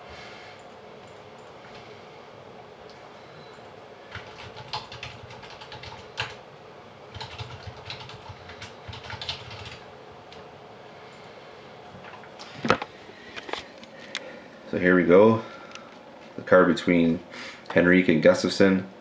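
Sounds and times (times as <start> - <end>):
keyboard typing: 3.5 - 6.4, 7.1 - 9.9.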